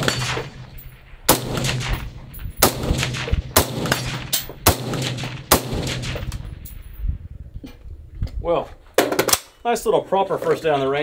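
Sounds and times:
gunshot echo: 0:00.0 - 0:06.8
suppressed rifle shots: 0:00.0 - 0:06.8.

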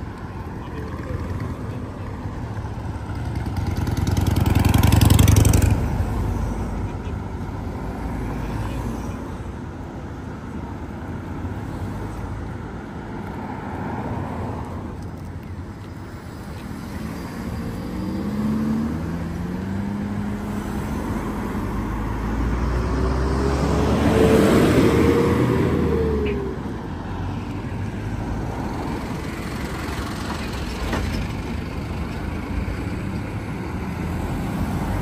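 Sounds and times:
car engines at low speed: 0:00.0 - 0:35.0
vehicle driving past: 0:16.8 - 0:26.6.

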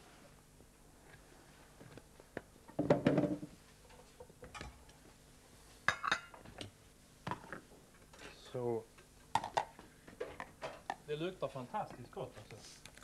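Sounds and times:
dishes clattering: 0:05.9 - 0:06.4.

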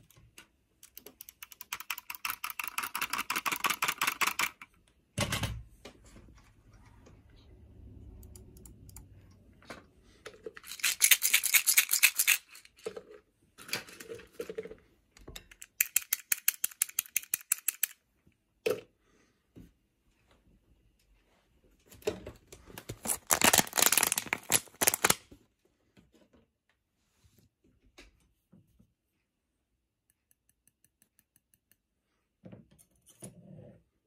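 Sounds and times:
fast typing on mechanical keyboard: 0:00.8 - 0:04.7, 0:23.0 - 0:25.2.

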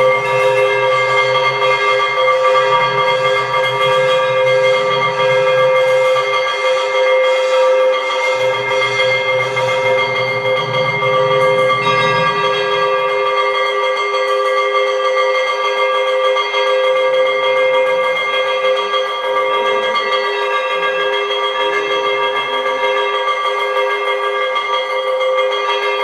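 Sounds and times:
low hum: 0:00.0 - 0:13.6
bell ringing continuously: 0:00.0 - 0:26.0.

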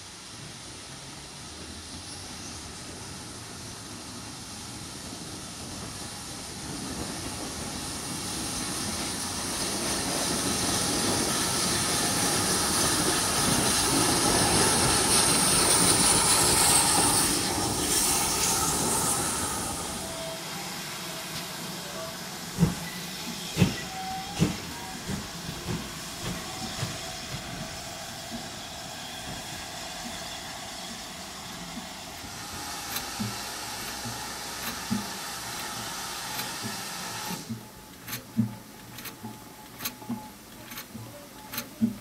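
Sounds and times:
steam hissing: 0:00.0 - 0:40.0
engine knocks and clicks: 0:31.7 - 0:42.0.

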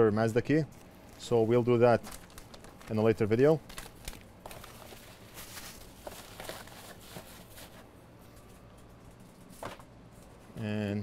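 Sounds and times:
plastic bags and paper crinkling: 0:00.8 - 0:08.5.

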